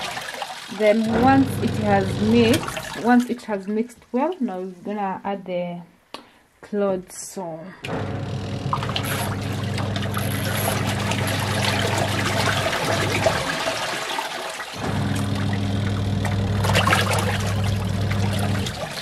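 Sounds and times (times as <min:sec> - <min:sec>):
washing machine motor humming: 0:00.0 - 0:03.2, 0:07.9 - 0:19.0
water churning and sloshing: 0:00.0 - 0:03.7, 0:07.9 - 0:19.0.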